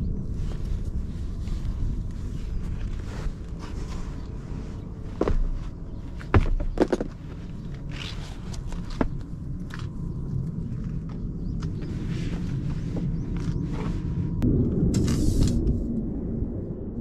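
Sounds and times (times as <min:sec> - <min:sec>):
handling knocks and thumps: 0:05.2 - 0:07.6.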